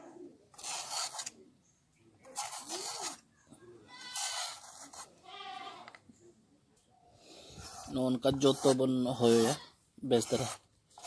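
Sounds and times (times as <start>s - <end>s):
peeler scraping gourd skin: 0.5s - 1.4s, 2.2s - 3.2s, 4.0s - 5.2s, 7.6s - 11.0s.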